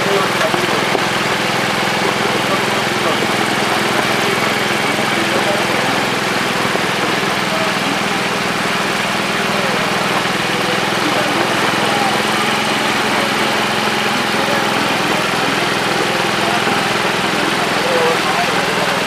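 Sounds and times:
pump motor humming: 0:00.0 - 0:19.0
water spraying and splashing: 0:00.0 - 0:19.0.

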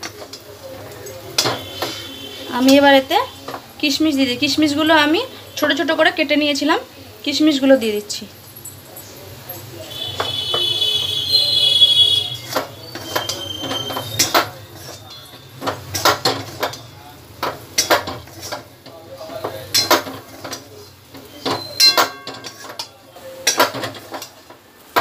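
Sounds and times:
metal spatula scraping metal pan: 0:00.0 - 0:03.7, 0:09.5 - 0:24.4.

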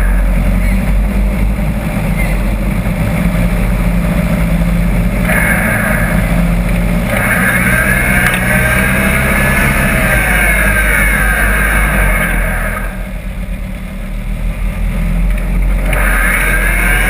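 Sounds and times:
off-road buggy engine revving: 0:00.0 - 0:17.0.

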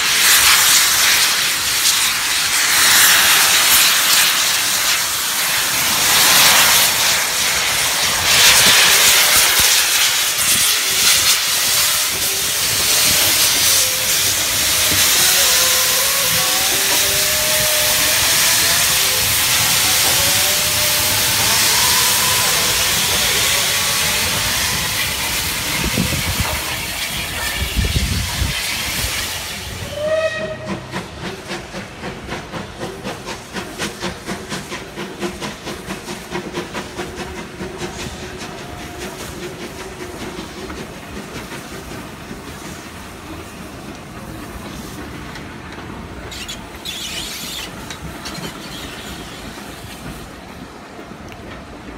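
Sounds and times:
distant steam locomotive exhaust beats: 0:00.0 - 0:51.9
loud steam hiss: 0:00.0 - 0:51.9
steam whistle: 0:10.5 - 0:25.2, 0:29.6 - 0:30.9.

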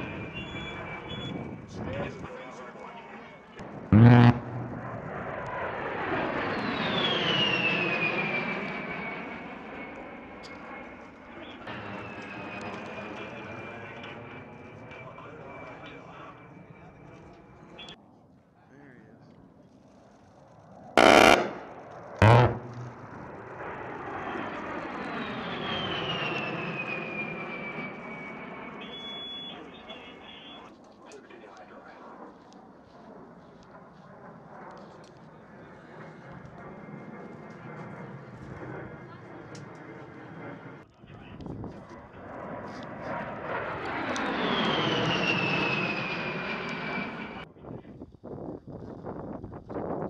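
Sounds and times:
jet engines passing overhead: 0:00.0 - 0:49.6
burst of cannon fire: 0:03.6 - 0:05.4, 0:21.0 - 0:23.6
thin jet whine falling in pitch: 0:03.6 - 0:09.4, 0:21.0 - 0:28.8.

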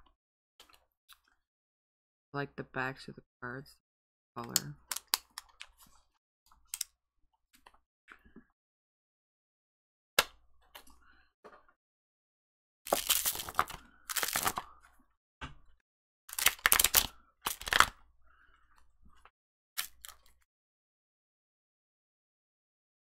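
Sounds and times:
cardboard box and cards rustling: 0:12.9 - 0:14.6, 0:16.3 - 0:17.9.

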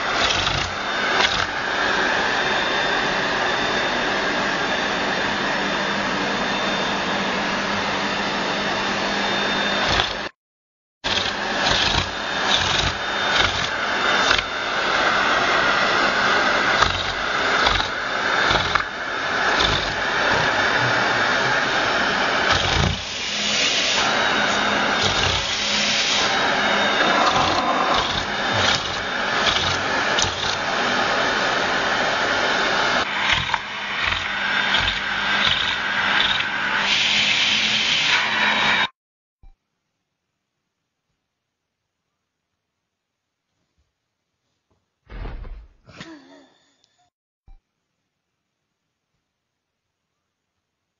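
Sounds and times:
vacuum cleaner suction: 0:00.0 - 0:10.3, 0:11.0 - 0:38.9.

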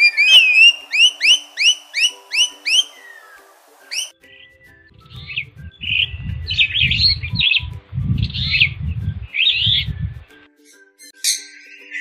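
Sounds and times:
starling chirps and whistles: 0:00.0 - 0:12.0
low rumble: 0:05.0 - 0:10.3.

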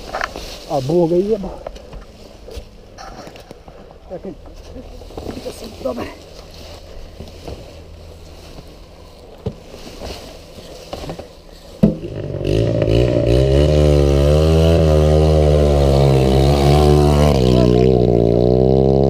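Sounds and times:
sharp knock: 0:11.8 - 0:12.2
dirt bike engine revving: 0:11.8 - 0:19.0.

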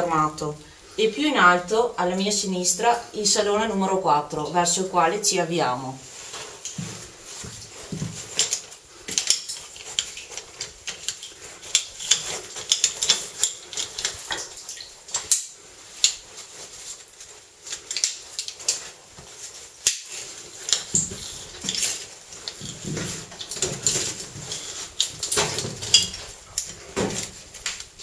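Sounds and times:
metal carabiners clinking: 0:19.9 - 0:26.8.

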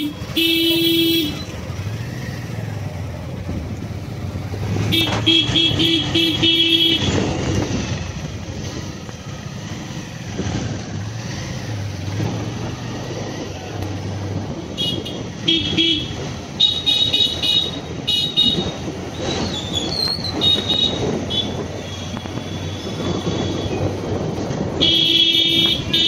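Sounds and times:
vehicle horn honking: 0:00.0 - 0:01.5, 0:04.8 - 0:07.3, 0:14.7 - 0:18.8, 0:20.4 - 0:23.8, 0:24.8 - 0:26.0
engines running: 0:00.0 - 0:26.0.

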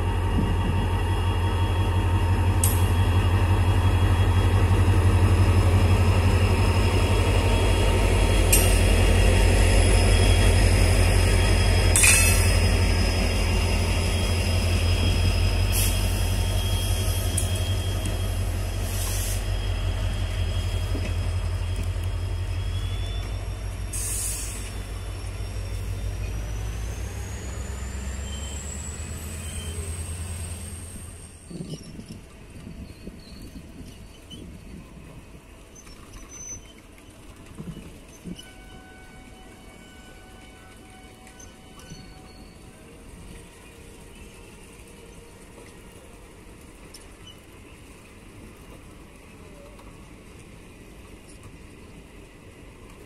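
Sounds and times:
diesel locomotive engine rumbling: 0:00.0 - 0:53.0
train coaches rolling by: 0:00.0 - 0:53.0
sharp metal clanks: 0:11.9 - 0:12.5.

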